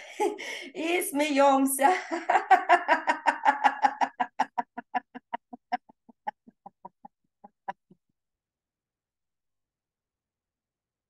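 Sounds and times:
woman laughing: 0:01.8 - 0:08.0.

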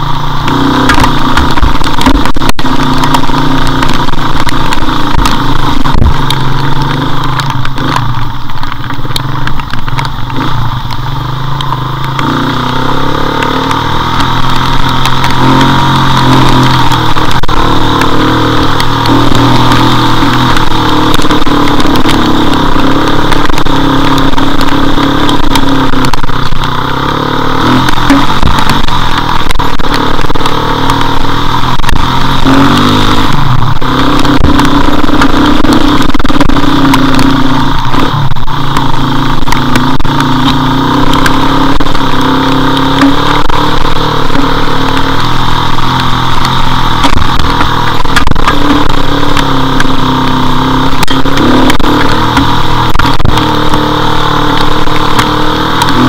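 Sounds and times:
wind rush on microphone: 0:00.0 - 0:11.0, 0:27.6 - 0:56.0
motorcycle engine running: 0:00.0 - 0:56.0.

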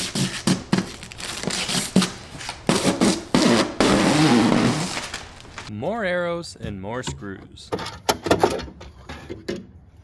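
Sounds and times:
plastic wrap crinkling: 0:00.6 - 0:05.7.

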